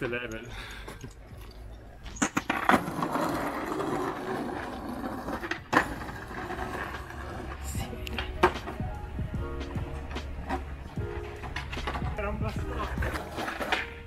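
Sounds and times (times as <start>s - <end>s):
skateboard wheels rolling on asphalt: 1.4s - 14.0s
skateboard clacks on asphalt: 2.1s - 7.6s, 9.8s - 14.0s.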